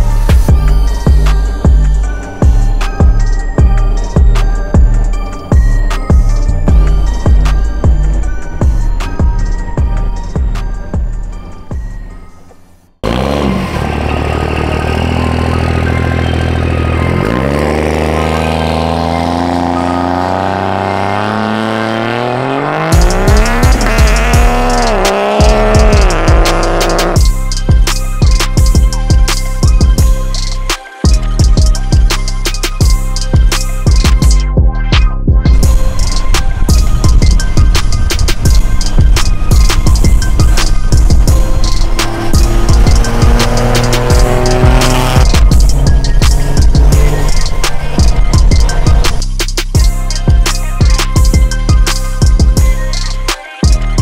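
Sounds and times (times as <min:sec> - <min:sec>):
electronic beat music: 0:00.0 - 0:11.9, 0:15.0 - 0:54.0
diesel pickup engine revving: 0:13.0 - 0:27.3, 0:37.3 - 0:49.5.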